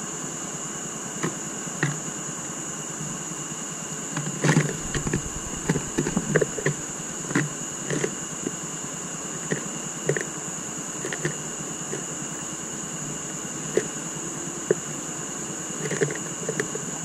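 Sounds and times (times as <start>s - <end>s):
steady high-pitched whine: 0.0s - 17.0s
birds tapping in wooden feeder: 4.5s - 6.8s.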